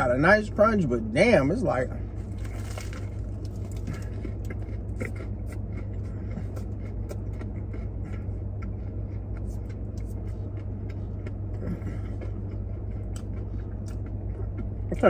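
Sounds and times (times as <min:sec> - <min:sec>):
car engine idling hum: 0:00.0 - 0:15.0
crunchy bread chewing: 0:02.0 - 0:15.0.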